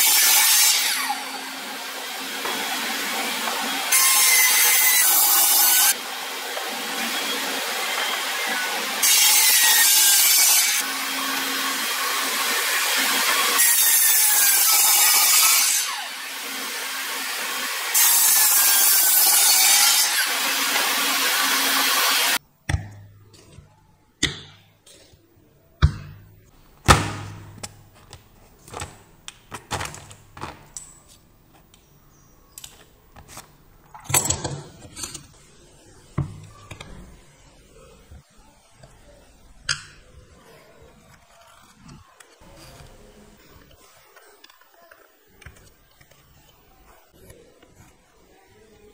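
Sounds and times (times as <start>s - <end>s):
miter saw cutting wood: 0.0s - 22.4s.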